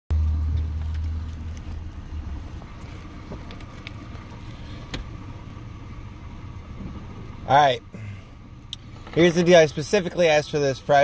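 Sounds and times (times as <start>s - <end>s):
car engine idling: 0.1s - 11.0s.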